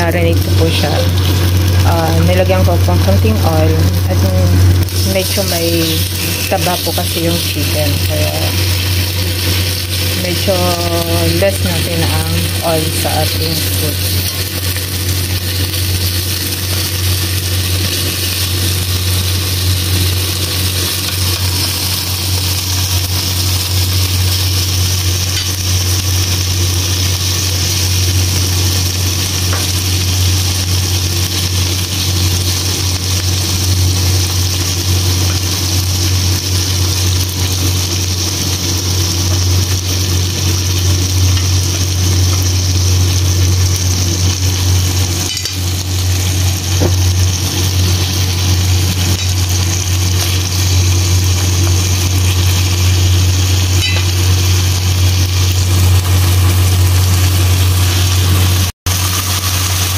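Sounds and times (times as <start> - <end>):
chicken sizzling in a wok: 0.0 - 59.9
low hum: 0.0 - 59.9.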